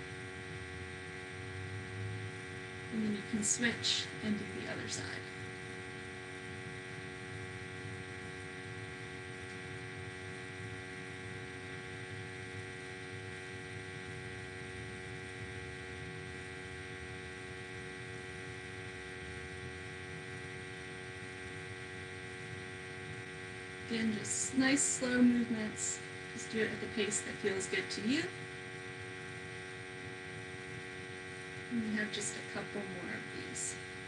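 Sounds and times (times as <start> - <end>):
electrical hum: 0.0 - 34.0.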